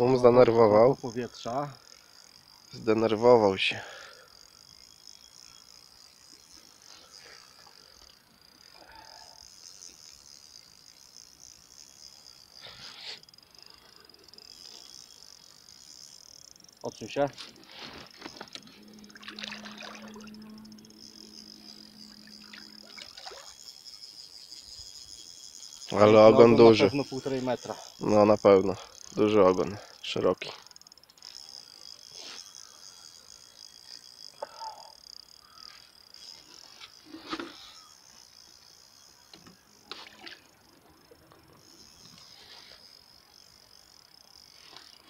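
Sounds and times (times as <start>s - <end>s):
low steady hum: 0.0s - 45.0s
steady high-pitched hiss: 0.0s - 45.0s
water sloshing and trickling: 17.6s - 21.0s, 21.8s - 23.8s.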